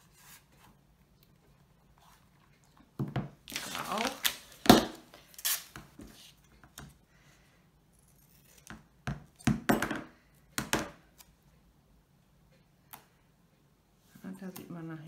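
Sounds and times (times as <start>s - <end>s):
tape ripping from roll: 3.5s - 5.8s.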